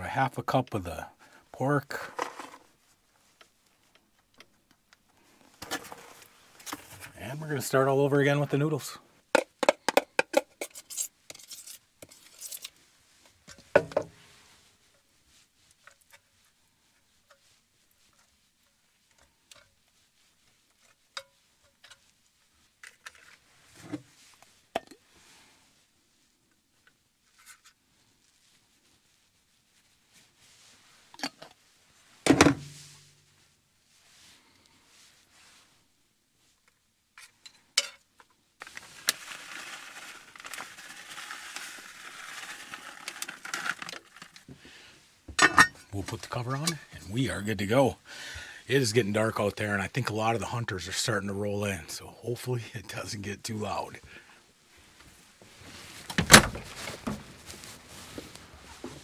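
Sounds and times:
plastic bag crinkling: 38.6s - 44.5s
short rustle: 54.2s - 59.0s.

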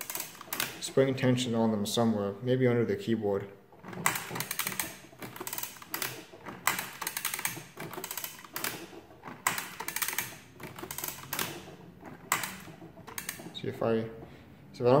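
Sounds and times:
adding machine metallic clicking: 0.0s - 1.3s, 3.7s - 14.3s.

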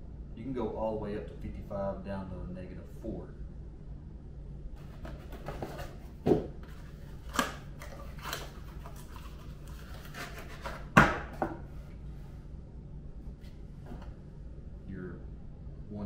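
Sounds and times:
cardboard rubbing and scraping: 4.8s - 7.4s, 8.0s - 10.9s.

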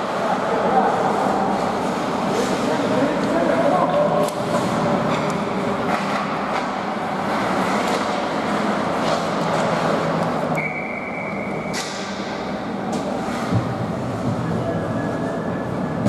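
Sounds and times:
sticks and puck clacking: 4.2s - 10.6s
skates scraping ice: 5.8s - 10.2s.

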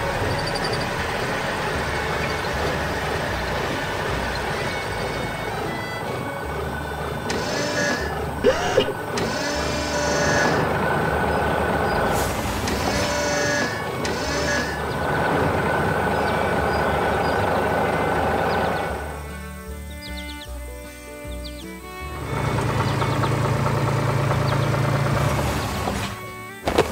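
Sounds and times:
cartoon tractor engine running: 0.0s - 26.9s
mechanical claw whirring and clanking: 7.3s - 10.6s.

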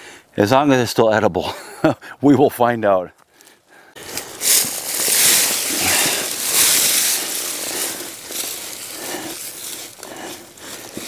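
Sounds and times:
digging through leaves and soil: 4.0s - 11.0s.

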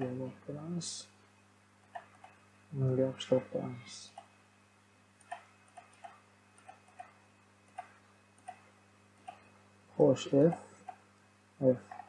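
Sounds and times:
faint electrical hum: 0.0s - 12.0s
mouse and keyboard clicks: 1.9s - 2.4s, 5.2s - 7.2s, 9.2s - 9.5s.

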